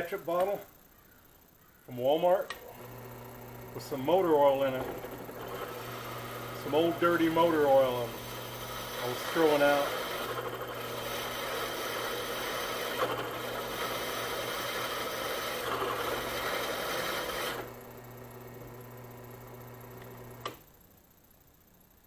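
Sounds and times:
drill press motor hum: 0.4 - 22.0
drill bit scraping steel: 2.7 - 17.8
drill press switch click: 20.0 - 20.7.

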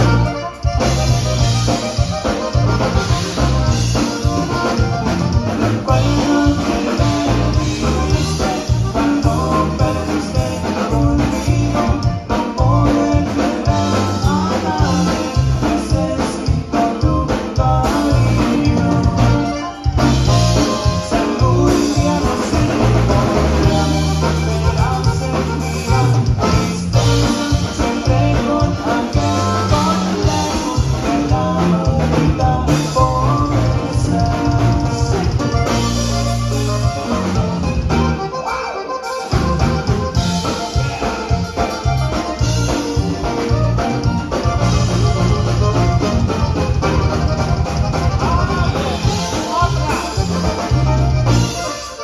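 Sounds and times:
accordion melody: 0.0 - 52.0
drum kit beat: 0.0 - 52.0
electric bass: 0.0 - 52.0
guitar: 0.0 - 52.0.

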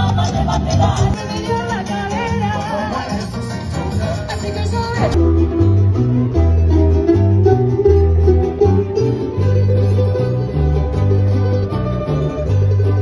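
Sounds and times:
dance music: 0.0 - 5.2
plucked string ensemble playing: 0.0 - 13.0.

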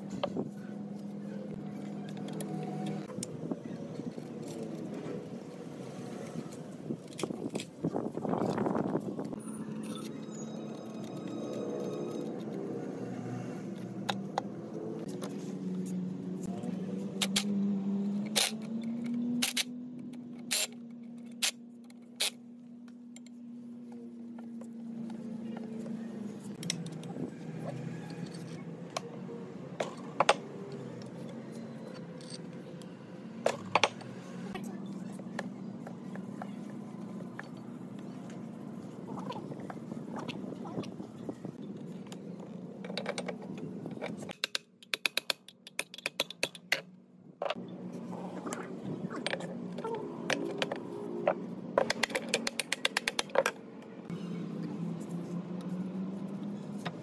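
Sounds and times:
metal tools clinking: 31.6 - 32.7.

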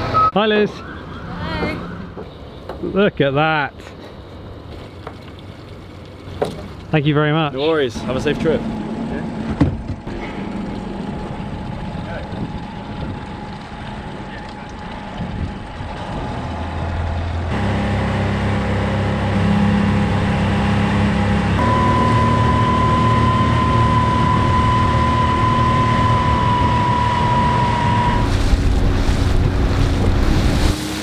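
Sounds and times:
speedboat engine running: 7.7 - 31.0
wind buffeting microphone: 11.0 - 16.4.

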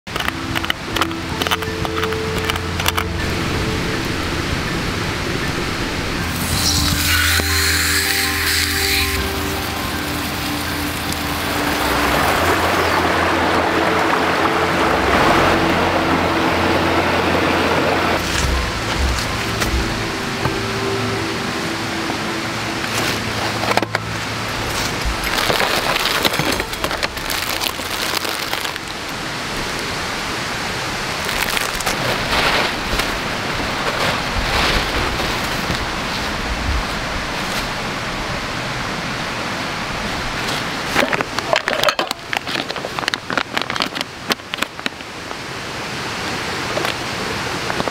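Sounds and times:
steady rushing noise: 0.1 - 41.6
plastic packaging crinkling: 24.7 - 29.1, 31.2 - 33.2, 41.9 - 44.9.

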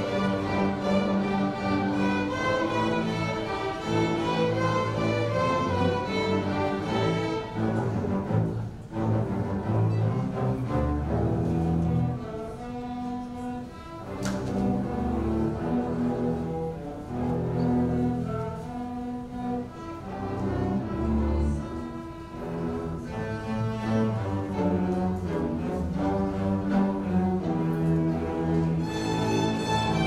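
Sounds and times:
held low cello and bass notes: 0.0 - 30.0
string orchestra playing: 0.0 - 30.0.

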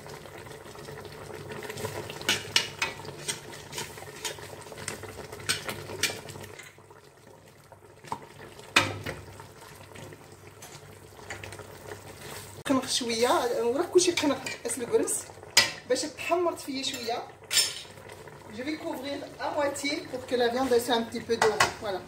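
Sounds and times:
metal spoon scraping a pot: 2.3 - 4.5.

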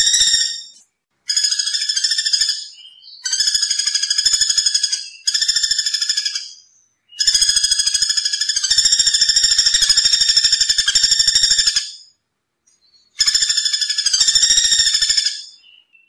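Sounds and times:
woodpecker rattling trill: 0.0 - 6.6, 7.2 - 12.0, 13.1 - 15.6.

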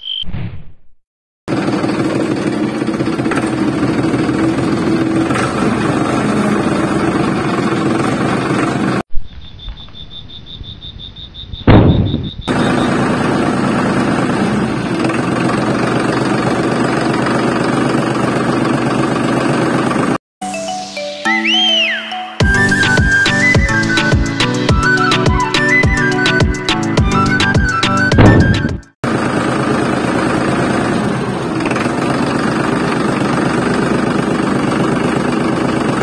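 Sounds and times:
small motor rattling: 1.5 - 9.0, 12.5 - 20.2, 29.2 - 36.0
sharp knock: 11.7 - 12.3.

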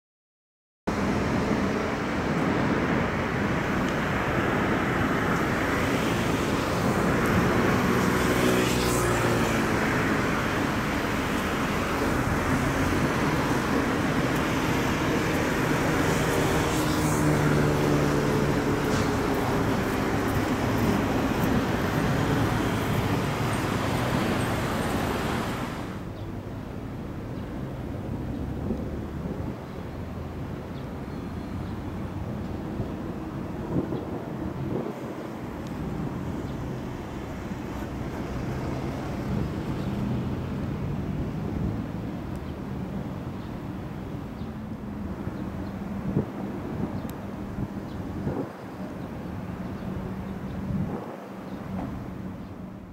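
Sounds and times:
road traffic noise: 0.9 - 52.9
vehicle passing by: 3.6 - 26.1, 33.7 - 42.4.

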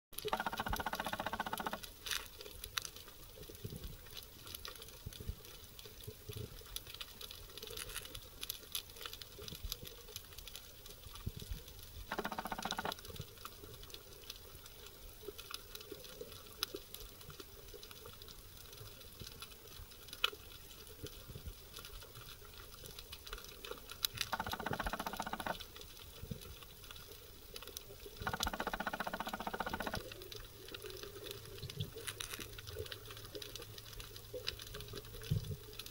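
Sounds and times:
underwater buzzing: 0.2 - 1.9, 12.1 - 13.0, 24.2 - 25.6, 28.2 - 30.1
underwater crackle of clicks: 0.2 - 35.9.

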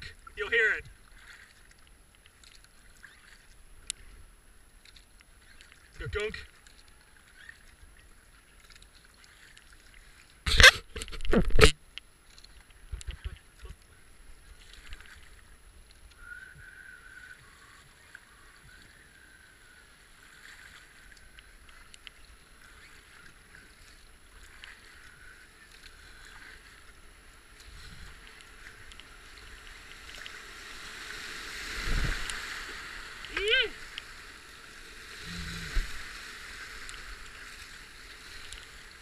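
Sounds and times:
paddle blades splashing: 0.0 - 39.0
water moving along hull: 0.0 - 39.0
light paddle clicks: 1.4 - 4.1, 4.8 - 7.8, 21.1 - 22.3, 28.2 - 30.4.

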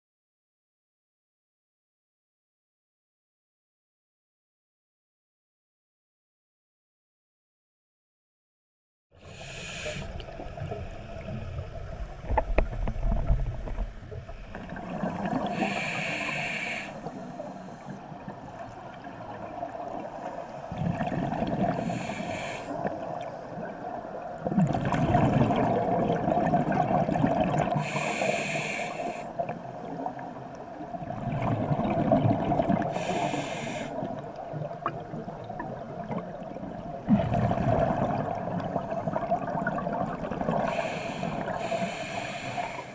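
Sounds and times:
regulator inhalation hiss: 9.2 - 10.2, 15.5 - 18.0, 21.8 - 22.9, 27.8 - 29.4, 32.9 - 34.0, 40.7 - 42.9
exhaled air bubbling: 9.2 - 42.9.

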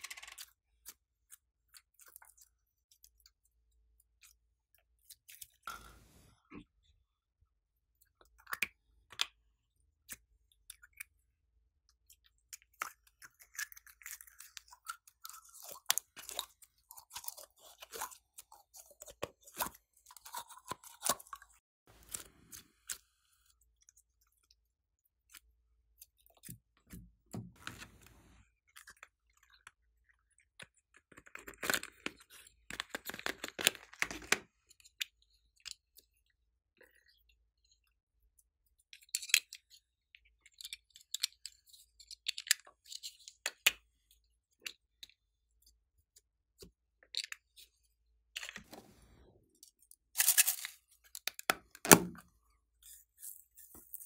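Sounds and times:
slime squishing: 12.0 - 24.5.

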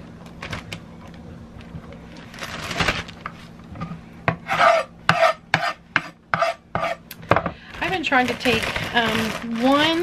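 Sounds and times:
plastic bag rustling: 2.1 - 3.6, 7.7 - 10.0.

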